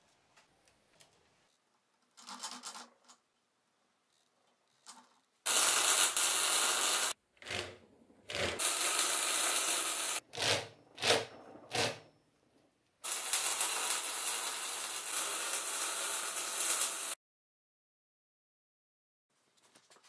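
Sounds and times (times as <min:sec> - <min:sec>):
arc welding crackling and hissing: 0:05.5 - 0:07.2, 0:08.6 - 0:10.2, 0:13.0 - 0:17.2.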